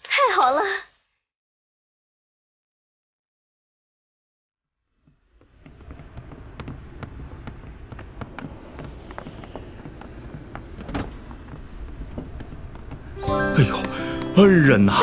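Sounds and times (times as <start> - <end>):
footsteps: 5.0 - 15.0
steady low rumble: 11.5 - 13.2.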